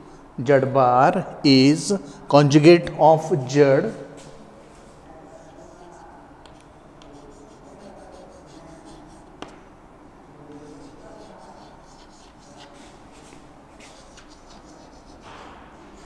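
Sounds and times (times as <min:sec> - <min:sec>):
chalk scratching on blackboard: 0:05.2 - 0:06.2, 0:07.0 - 0:09.6, 0:10.5 - 0:16.0.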